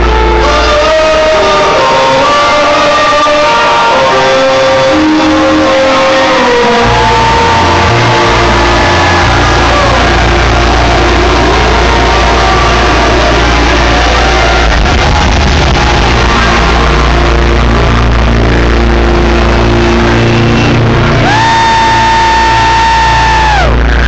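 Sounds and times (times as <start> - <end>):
loud live band music: 0.0 - 24.0.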